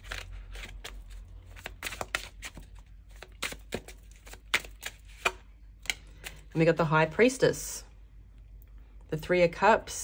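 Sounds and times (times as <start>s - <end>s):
cards being shuffled: 0.0s - 6.5s.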